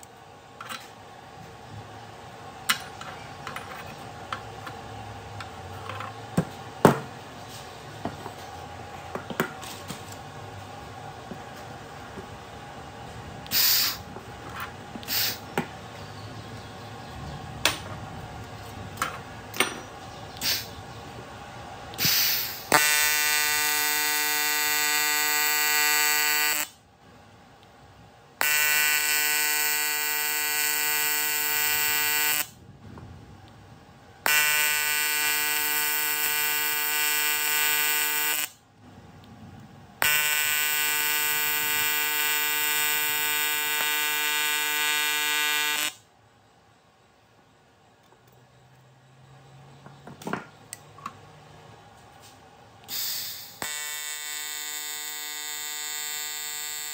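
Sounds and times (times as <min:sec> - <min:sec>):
welding arc buzzing: 0:13.5 - 0:14.1, 0:22.0 - 0:26.8, 0:28.4 - 0:32.6, 0:34.2 - 0:38.6, 0:40.0 - 0:46.0, 0:52.9 - 0:56.9.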